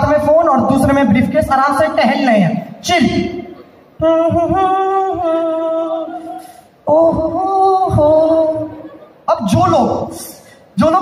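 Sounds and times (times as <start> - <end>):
man singing wordless tune: 2.8 - 11.0.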